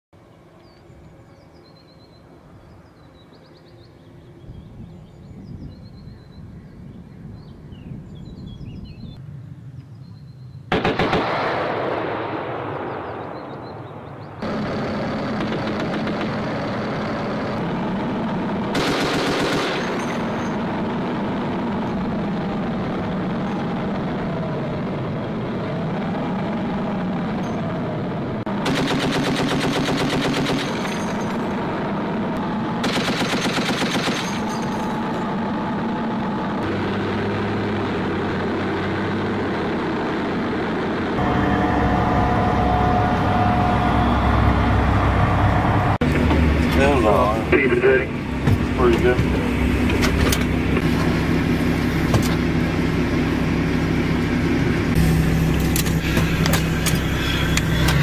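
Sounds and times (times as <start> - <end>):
faint bird chirps: 0.5 - 10.7
low steady hum: 11.4 - 58.0
machine gun bursts: 18.7 - 20.7, 28.6 - 31.6, 32.8 - 35.2.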